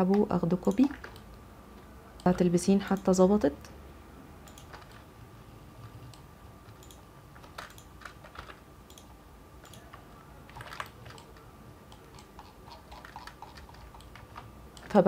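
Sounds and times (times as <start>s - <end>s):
keyboard and mouse clicks: 0.0s - 1.4s, 4.4s - 5.1s, 5.8s - 15.0s.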